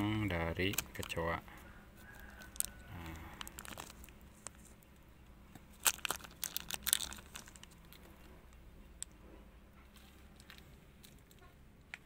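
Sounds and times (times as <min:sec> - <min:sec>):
plastic bags crinkling: 0:02.0 - 0:04.8, 0:05.7 - 0:08.3.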